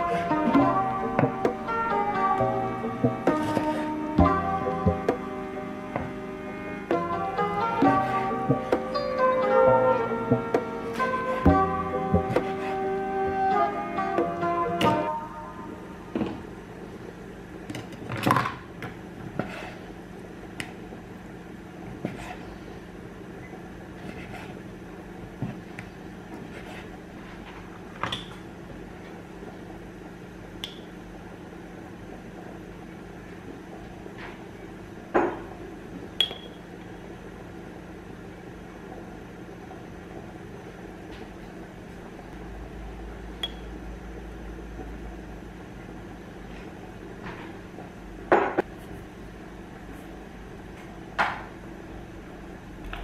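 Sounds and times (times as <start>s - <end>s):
steady low hum: 0.0s - 53.0s
knife on wooden chopping board: 3.3s - 3.9s, 12.2s - 12.8s.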